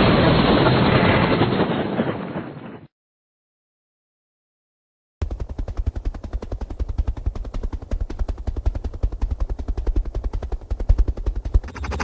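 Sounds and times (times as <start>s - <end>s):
helicopter rotor thudding: 5.2s - 12.0s
hissing helicopter engine: 5.2s - 12.0s.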